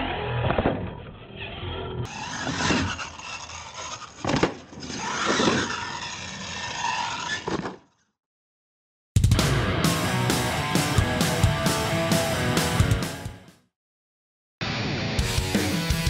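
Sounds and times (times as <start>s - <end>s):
rc truck motor whine: 0.0s - 7.4s
tyres skidding on dirt: 1.2s - 7.6s.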